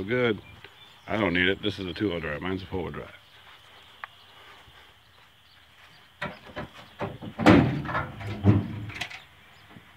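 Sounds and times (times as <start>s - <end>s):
metal clanking thuds: 6.2s - 9.2s.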